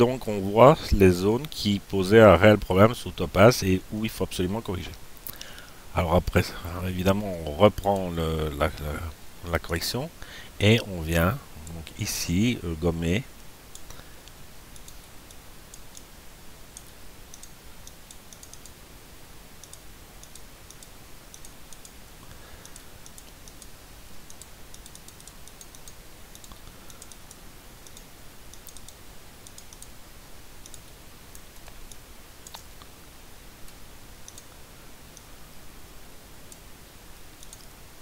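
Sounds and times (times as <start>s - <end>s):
steady background hiss: 0.0s - 38.0s
computer mouse clicking: 13.7s - 16.1s, 16.7s - 18.8s, 19.6s - 22.0s, 22.6s - 30.0s, 30.6s - 32.9s, 33.6s - 34.5s, 37.4s - 37.7s.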